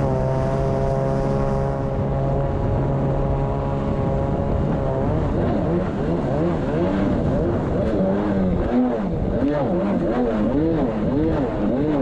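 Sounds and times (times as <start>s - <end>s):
jet ski engine running hard: 0.0s - 12.0s.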